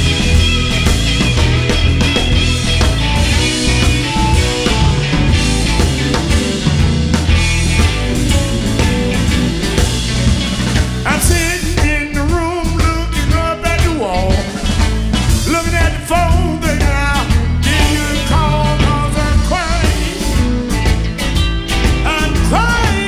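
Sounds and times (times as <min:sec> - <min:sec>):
bass guitar: 0:00.0 - 0:23.0
drums: 0:00.0 - 0:23.0
electric guitars: 0:00.0 - 0:23.0
man singing: 0:11.0 - 0:20.5, 0:22.0 - 0:23.0.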